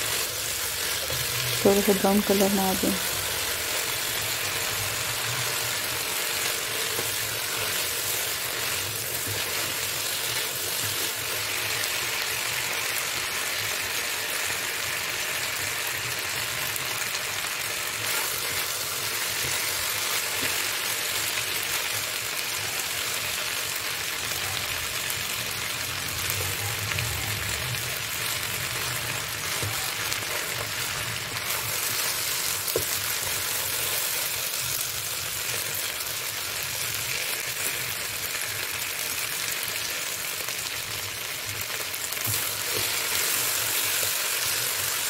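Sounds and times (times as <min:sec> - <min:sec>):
chicken sizzling in oil: 0:00.0 - 0:45.0
spatula stirring in wok: 0:03.0 - 0:12.5.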